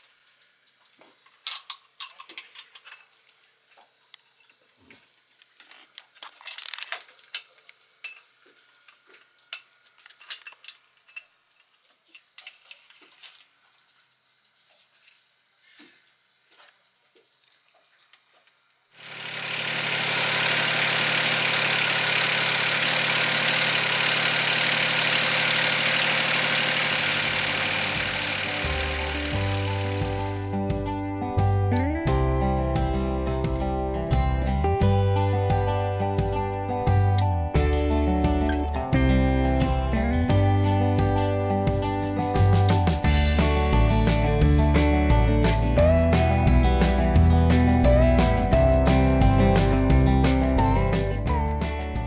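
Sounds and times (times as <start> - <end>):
small clicks and metal knocks: 4.1 - 14.1
diesel engine running: 19.0 - 30.6.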